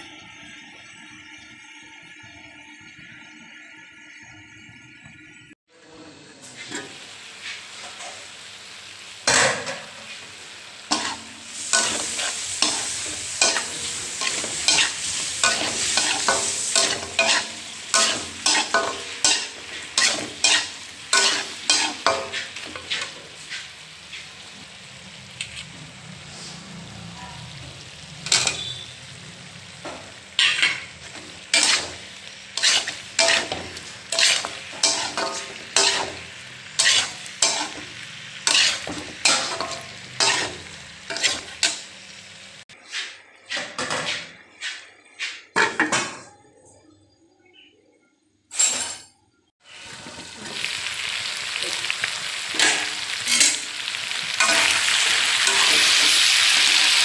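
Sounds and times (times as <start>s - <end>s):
food sizzling in oil: 6.4s - 42.8s, 49.6s - 57.0s
metal spatula scraping a pan: 9.3s - 24.4s, 28.2s - 29.0s, 29.8s - 42.0s, 52.5s - 57.0s.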